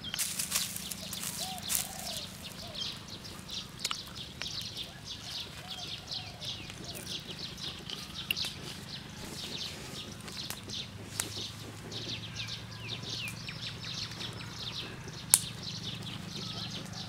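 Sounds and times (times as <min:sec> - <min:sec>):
small birds chirping: 0:00.0 - 0:17.0
steady low hum: 0:00.0 - 0:17.0
sharp clicks: 0:03.3 - 0:04.8, 0:05.9 - 0:17.0.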